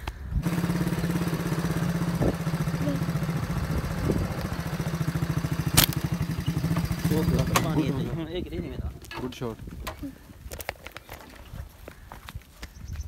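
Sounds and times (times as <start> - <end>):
small engine running: 0.4 - 8.4
sharp snap: 5.7 - 6.2.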